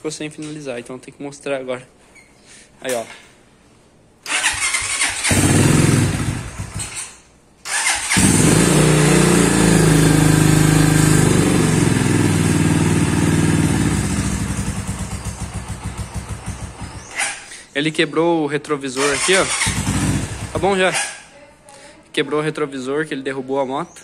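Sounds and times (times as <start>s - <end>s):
motorcycle engine starting and revving: 4.2s - 17.4s, 19.0s - 21.2s.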